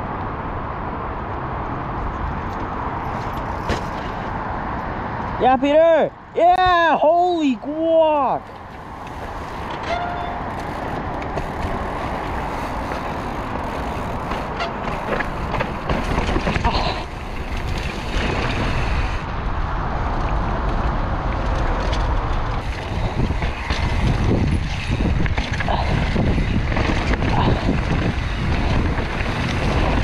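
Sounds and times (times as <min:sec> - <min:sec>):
bike clicks and rattles: 0:02.0 - 0:05.4, 0:08.4 - 0:19.3, 0:20.0 - 0:30.0
tyre noise on dirt: 0:02.0 - 0:05.5, 0:08.4 - 0:30.0
wind buffeting microphone: 0:08.4 - 0:30.0.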